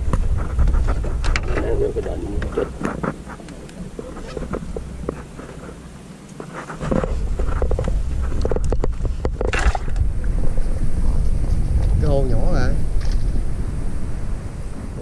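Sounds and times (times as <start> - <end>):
fishing gear clicks and rustles: 0.0 - 10.4
wind buffeting microphone: 0.0 - 15.0.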